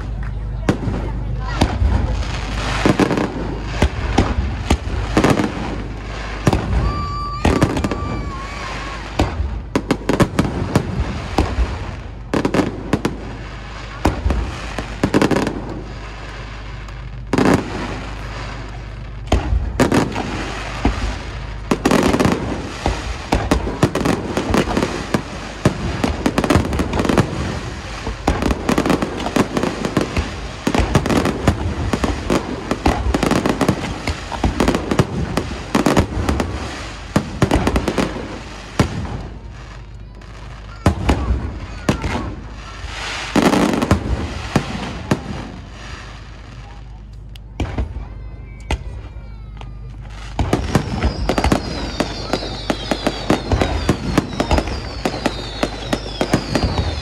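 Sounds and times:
fireworks bangs: 0.0 - 57.0.

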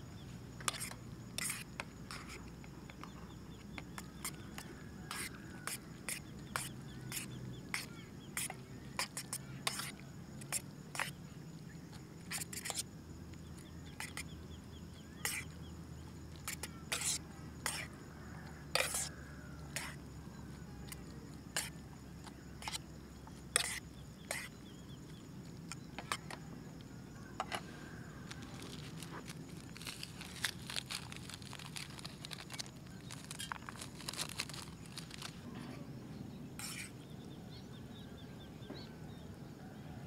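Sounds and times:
fork scraping metal pot: 15.2 - 15.4, 18.7 - 19.1
seasoning crackling and rustling: 27.8 - 35.4.

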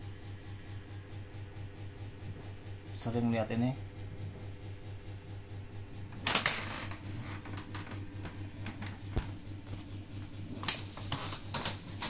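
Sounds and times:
low pulsing hum: 0.0 - 12.0.

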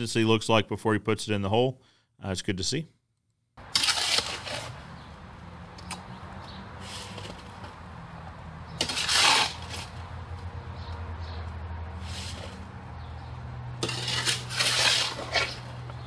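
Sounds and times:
hoe scraping wet concrete: 3.6 - 5.2, 5.9 - 7.9, 8.7 - 10.2, 11.8 - 16.0.

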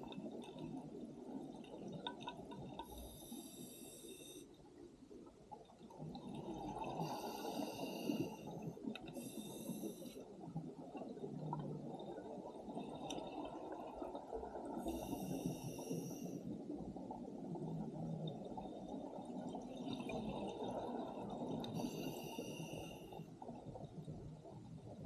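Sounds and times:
regulator inhalation hiss: 3.1 - 4.4, 7.0 - 8.4, 9.2 - 10.1
rumble of exhaled bubbles: 5.5 - 22.2.

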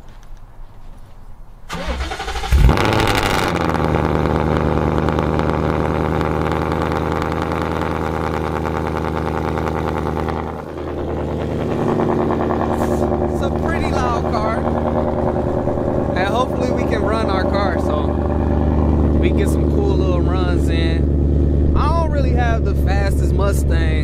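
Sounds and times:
starter motor cranking: 1.7 - 3.6
car engine revving and idling: 1.7 - 24.0.

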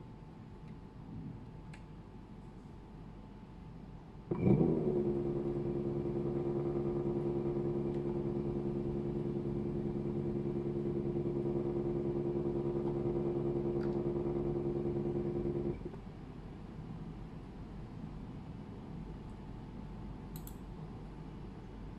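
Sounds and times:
electric motor humming: 4.4 - 15.9.

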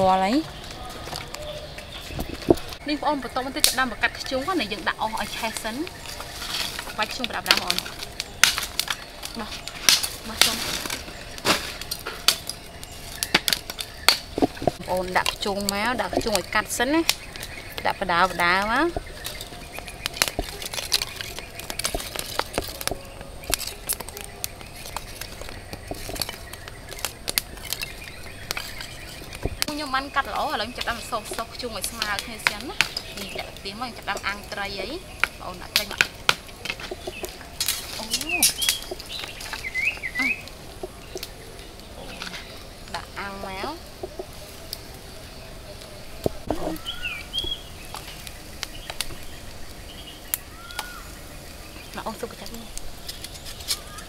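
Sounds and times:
charcoal lumps clinking together: 5.2 - 41.4
bird whistling: 38.0 - 41.4, 46.4 - 52.2.

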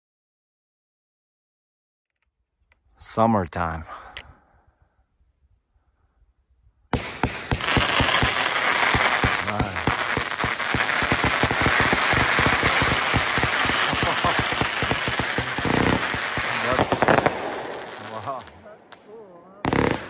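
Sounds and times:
firework crackle: 6.9 - 20.0
firework launch shots: 6.9 - 20.0.

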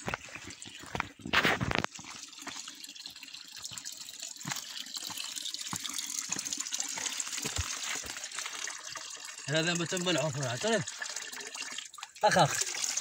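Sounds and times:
water splashing into rocky pool: 4.4 - 8.8.

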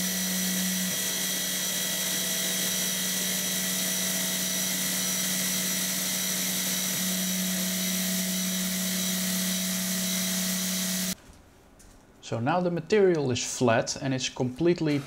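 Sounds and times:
milling machine cutting metal: 0.0 - 11.2.

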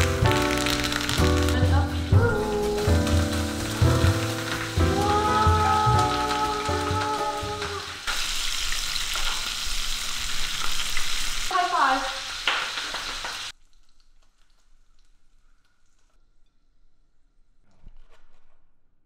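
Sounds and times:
steak sizzling in butter: 0.0 - 13.6.

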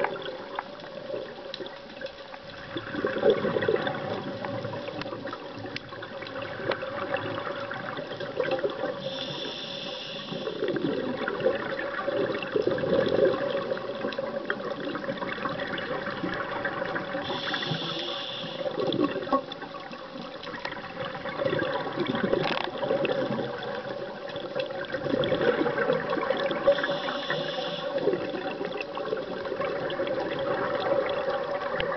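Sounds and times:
exhaled air bubbling underwater: 0.0 - 31.9
regulator inhalation hiss: 9.0 - 10.7, 17.2 - 18.9, 26.7 - 28.2.

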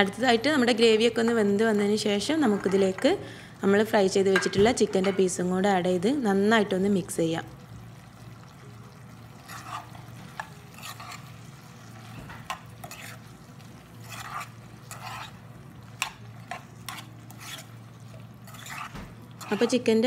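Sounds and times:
spoon stirring thick sauce: 9.4 - 19.8.

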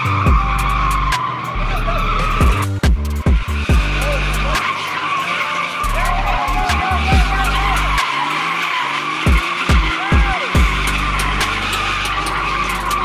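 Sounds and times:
car engine revving hard: 0.0 - 13.0
tyres squealing: 0.0 - 13.0.

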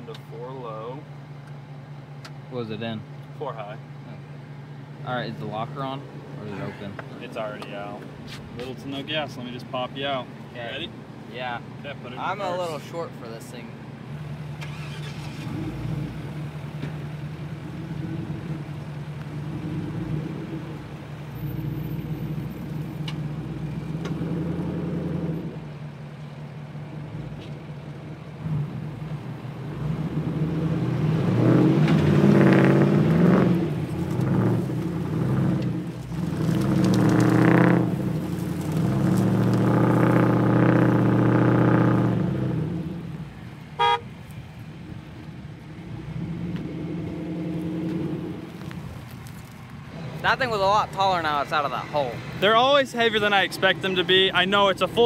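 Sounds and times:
truck engines idling: 0.0 - 31.0, 33.1 - 55.0
engine revving under load: 14.1 - 25.7, 28.4 - 44.0, 45.7 - 48.8.

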